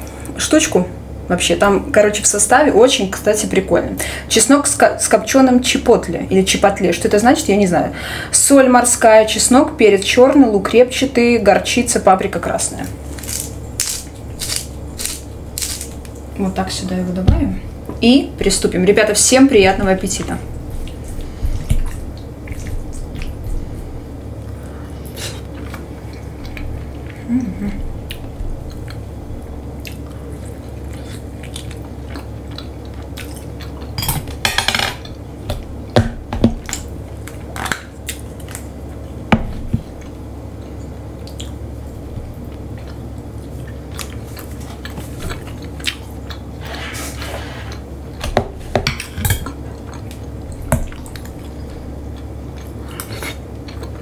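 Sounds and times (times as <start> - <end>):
quiet chewing: 20.6 - 23.8, 24.4 - 29.1, 29.8 - 34.0, 39.8 - 41.6, 42.2 - 48.2, 49.4 - 54.0.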